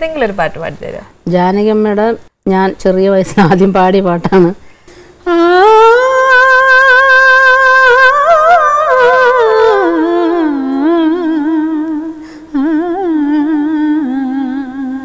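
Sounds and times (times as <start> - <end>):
woman singing unaccompanied: 5.2 - 15.0.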